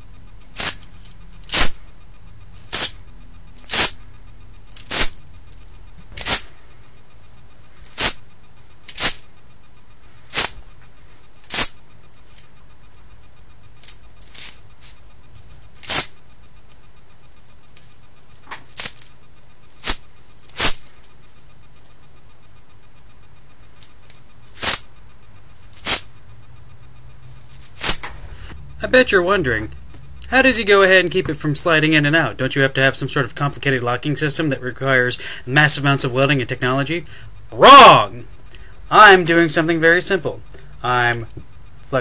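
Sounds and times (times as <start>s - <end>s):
metal blade scraping on rails: 0.4s - 6.9s, 10.1s - 12.6s, 13.8s - 16.2s, 23.8s - 24.9s.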